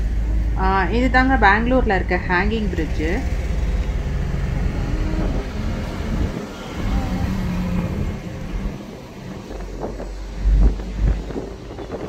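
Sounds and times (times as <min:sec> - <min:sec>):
car engine and tyre rumble: 0:00.0 - 0:12.0.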